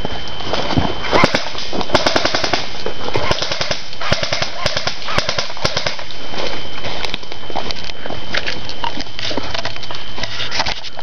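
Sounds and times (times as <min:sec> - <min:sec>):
running steps through dry leaves: 0:00.0 - 0:11.0
airsoft rifles firing: 0:01.1 - 0:06.2.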